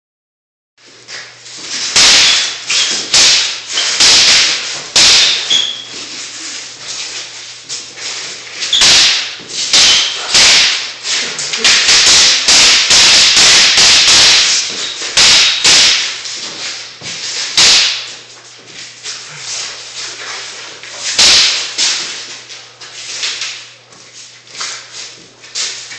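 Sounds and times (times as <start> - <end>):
wooden sticks clacking together: 8.7 - 16.0.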